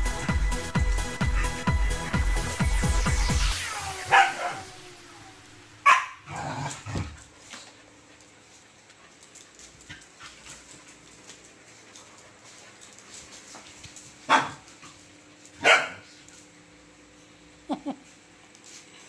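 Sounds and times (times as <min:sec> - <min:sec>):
music with thumping beat: 0:00.0 - 0:03.6
dogs barking and yelping: 0:01.0 - 0:01.8, 0:03.0 - 0:13.5, 0:14.2 - 0:16.6.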